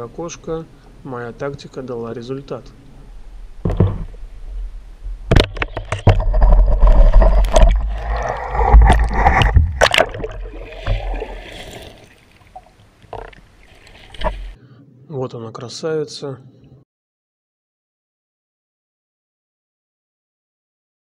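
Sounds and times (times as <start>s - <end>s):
sharp knocks: 3.6s - 4.2s, 5.3s - 7.9s
water splashing and churning: 5.3s - 14.6s.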